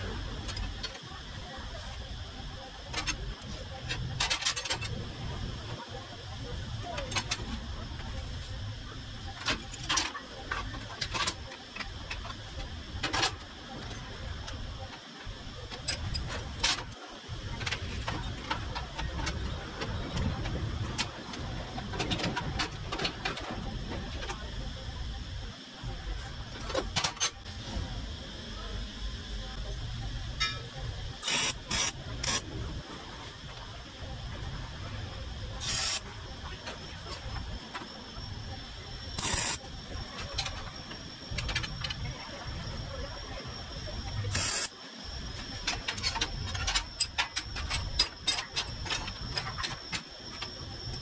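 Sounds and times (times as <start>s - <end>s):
faint high whine: 0.0s - 51.0s
arc welder hissing bursts: 31.2s - 32.5s, 35.6s - 36.0s, 39.2s - 39.6s, 44.3s - 44.7s.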